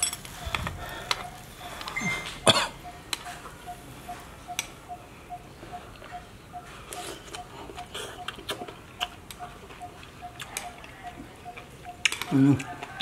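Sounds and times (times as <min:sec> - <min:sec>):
loud cough: 0:02.4 - 0:02.8
food being chewed: 0:05.7 - 0:13.0.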